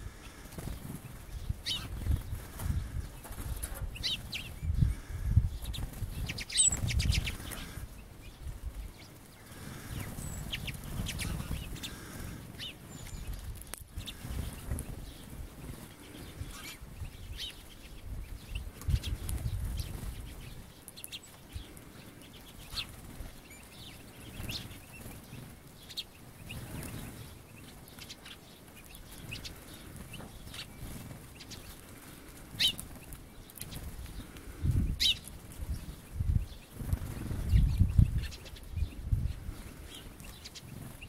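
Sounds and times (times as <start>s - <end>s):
small birds chirping: 0.0s - 41.0s
wing flutters: 0.1s - 16.8s, 22.5s - 38.5s.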